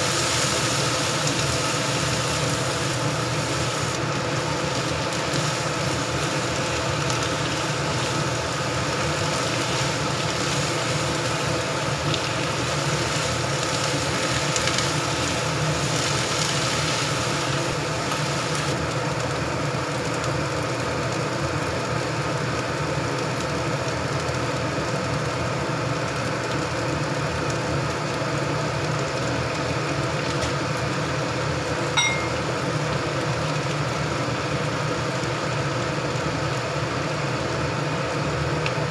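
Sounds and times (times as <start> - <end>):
spatula stirring vegetables: 0.0 - 18.8
machine hum: 0.0 - 19.5
vegetables sizzling in wok: 0.0 - 38.9
short high beep: 32.0 - 32.5.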